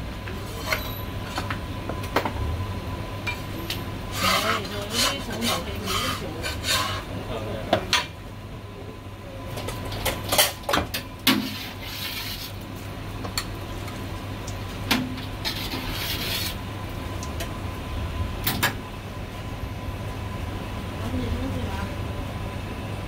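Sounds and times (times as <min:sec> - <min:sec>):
low kitchen hum: 0:00.0 - 0:23.0
blade scraping on meat and board: 0:04.1 - 0:07.1, 0:11.4 - 0:12.6, 0:15.4 - 0:16.6.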